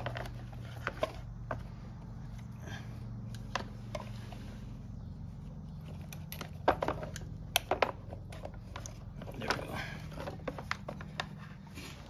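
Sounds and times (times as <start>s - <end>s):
hand tool clicks and metallic knocks: 5.8s - 11.4s.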